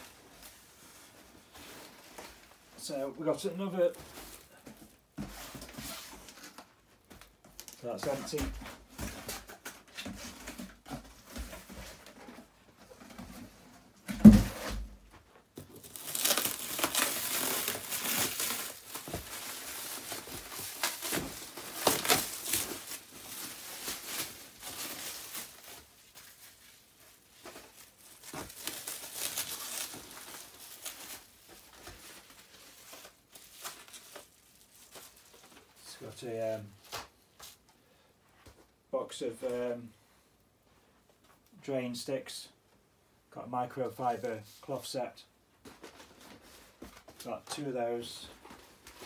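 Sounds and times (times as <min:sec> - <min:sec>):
plastic wrap crinkling and tearing: 0:15.6 - 0:35.8.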